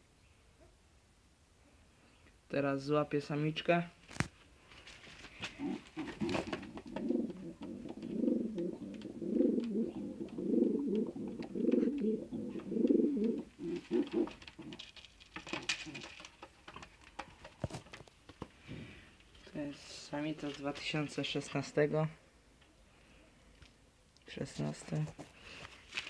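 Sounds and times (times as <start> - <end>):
pigeon cooing: 5.4 - 14.9
clicks and rustles in wire cage: 13.5 - 18.2.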